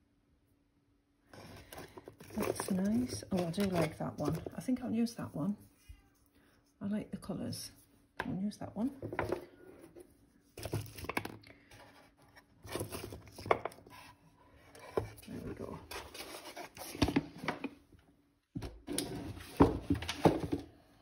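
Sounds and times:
paper rustling and crinkling: 1.4 - 4.7, 14.8 - 17.6.

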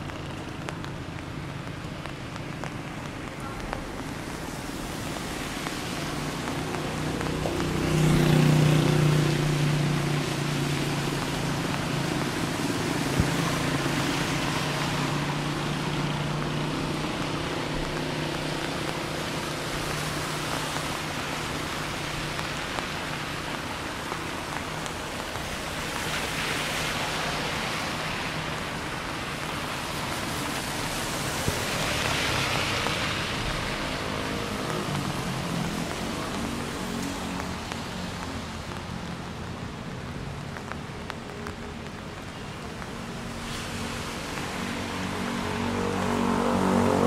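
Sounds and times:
rain hissing: 0.0 - 47.0
tyres hissing on wet road: 0.0 - 47.0
vehicle engine hum: 27.4 - 47.0.

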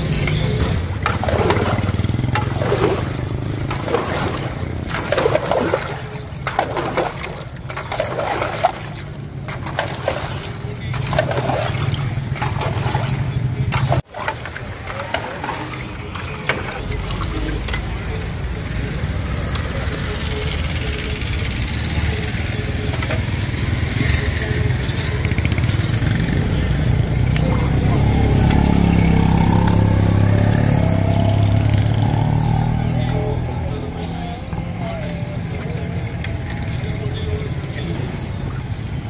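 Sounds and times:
motor engine running: 0.0 - 17.7.

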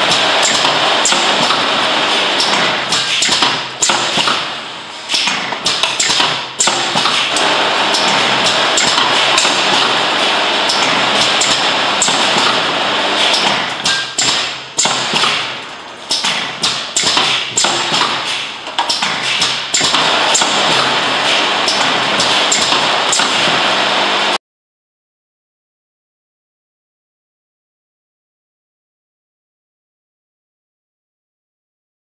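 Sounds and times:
vacuum pump hiss and hum: 0.0 - 24.4.

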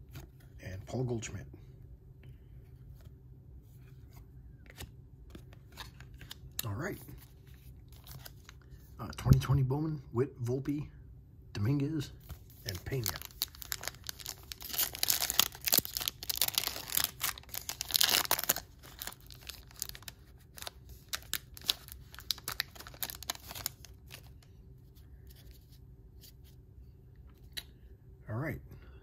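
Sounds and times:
cards rustling and clicking: 12.2 - 24.4
wrapper tearing and crinkling: 12.6 - 24.4.

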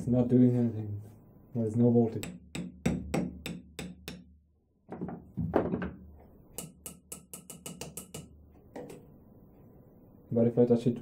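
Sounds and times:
wooden stick tapping metal: 2.2 - 4.4, 6.5 - 9.0.

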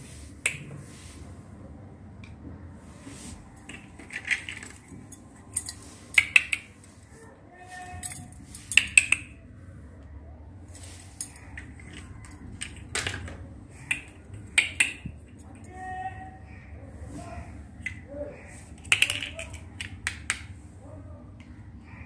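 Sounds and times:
plastic teacups clicking on plates: 3.6 - 6.9, 8.7 - 9.4, 11.2 - 15.7, 17.8 - 18.1, 18.7 - 20.6.

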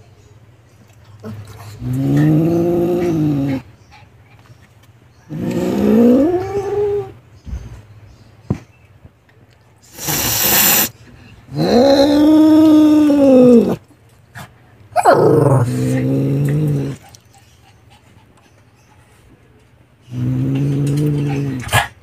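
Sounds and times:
cat growling yowls: 5.3 - 7.2, 11.5 - 13.8, 15.0 - 17.0
cat hissing: 9.9 - 13.8.

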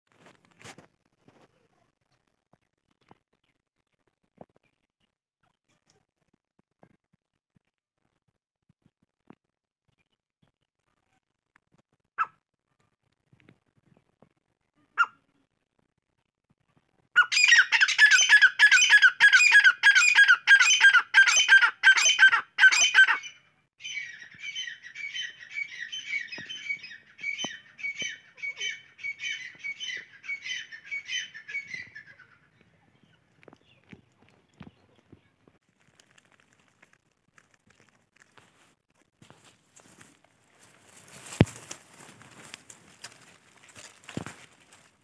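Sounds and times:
francolin calling: 17.2 - 32.4.

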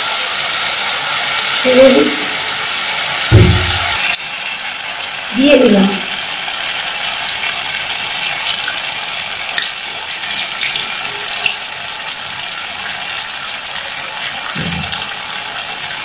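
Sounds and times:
batter sizzling in hot oil: 0.0 - 16.0.

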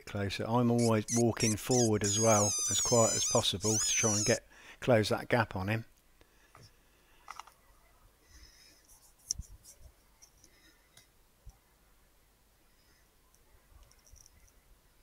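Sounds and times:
small handling clicks: 7.2 - 7.6
soft rustles: 8.7 - 11.0.

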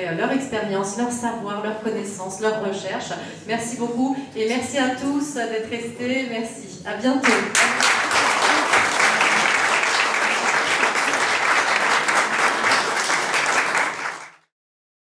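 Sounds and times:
audience applauding: 7.2 - 14.5.

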